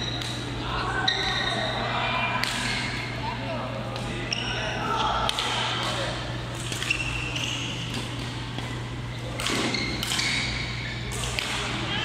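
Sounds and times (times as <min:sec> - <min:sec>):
shoes squeaking on court floor: 0:06.5 - 0:11.1
racket hitting shuttlecock: 0:07.8 - 0:10.5, 0:11.1 - 0:11.8.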